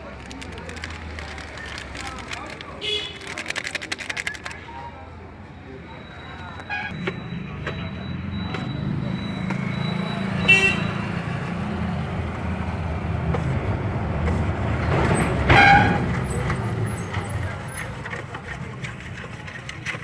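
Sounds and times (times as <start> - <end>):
vehicle engine rumbling: 0.0 - 20.0.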